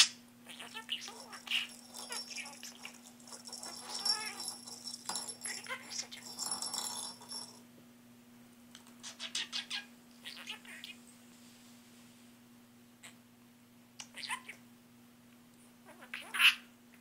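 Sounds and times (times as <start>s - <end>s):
plastic ball toy rattling: 1.0s - 7.6s.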